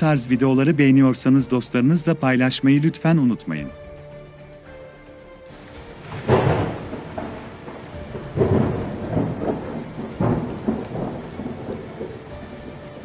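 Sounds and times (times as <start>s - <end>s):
steady rain: 5.5s - 13.0s
sharp thunder crack: 5.6s - 13.0s
thunder rolling: 5.6s - 13.0s.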